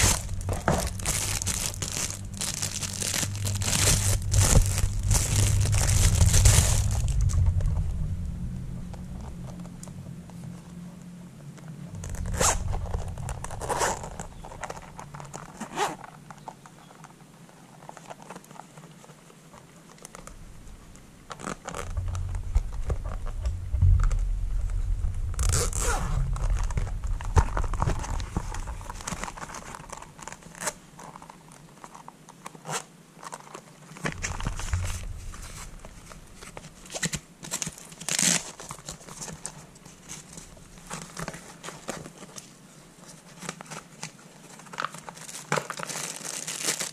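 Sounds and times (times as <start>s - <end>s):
zipper being pulled: 0.0s - 7.7s, 12.0s - 16.1s, 25.4s - 31.3s
case rubbing and handling: 0.0s - 8.0s, 12.0s - 24.8s, 25.4s - 46.9s.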